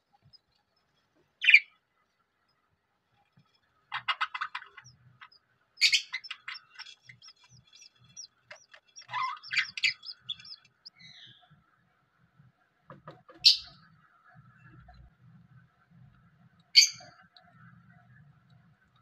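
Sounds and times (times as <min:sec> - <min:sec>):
budgerigars chirping: 0:01.4 - 0:01.7, 0:03.9 - 0:11.5, 0:13.3 - 0:13.9, 0:16.8 - 0:17.8.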